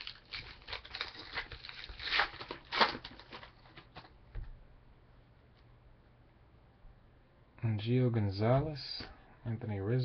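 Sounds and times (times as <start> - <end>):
cards clicking and rustling: 0.0 - 4.2.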